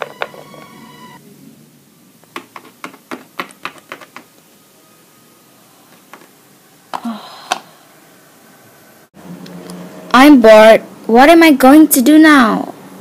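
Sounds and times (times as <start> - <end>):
plastic toys clicking on floor: 2.3 - 4.4.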